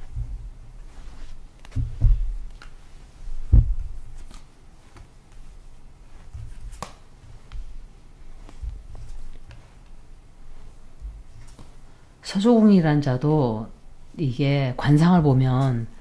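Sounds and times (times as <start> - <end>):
light clicks of card handling: 1.2 - 2.8, 4.2 - 5.6, 6.2 - 10.0, 11.3 - 11.8.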